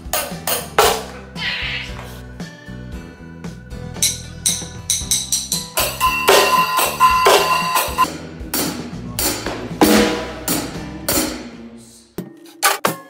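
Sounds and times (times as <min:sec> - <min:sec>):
cymbal crashes: 0:09.3 - 0:11.6.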